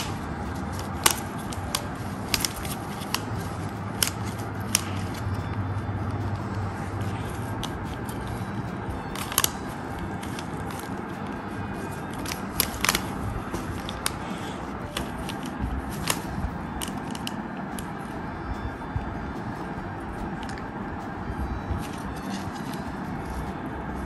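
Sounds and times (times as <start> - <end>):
plastic puzzle clicking: 0.0 - 5.3, 9.1 - 11.0, 12.0 - 14.2, 14.9 - 18.0.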